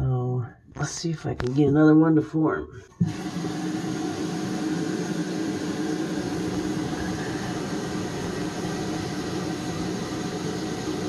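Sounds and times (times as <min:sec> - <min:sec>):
low hum: 0:03.0 - 0:11.0
water hissing through hose: 0:03.0 - 0:11.0.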